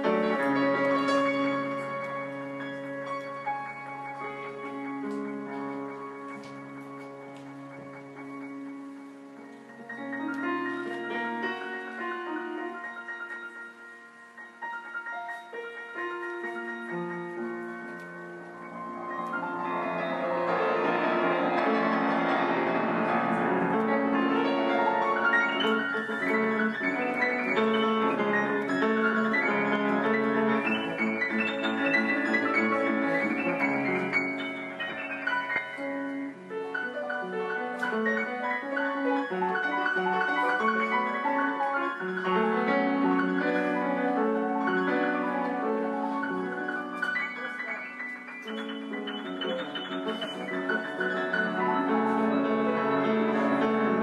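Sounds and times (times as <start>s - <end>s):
grand piano playing: 0.0s - 54.0s.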